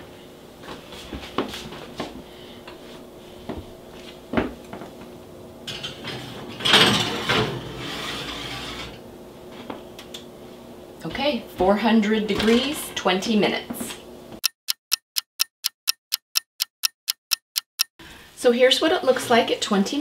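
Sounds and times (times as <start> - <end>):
dish scraping on metal rack: 5.7 - 9.0.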